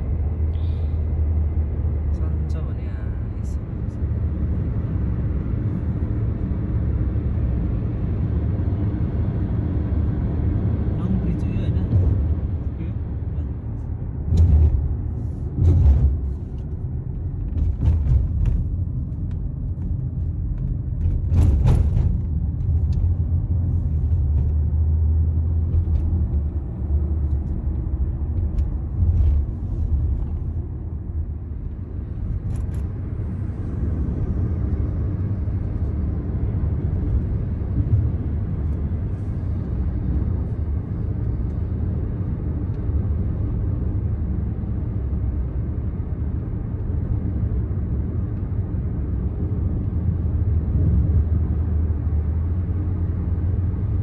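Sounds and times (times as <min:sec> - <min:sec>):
engine and road rumble: 0:00.0 - 0:54.0.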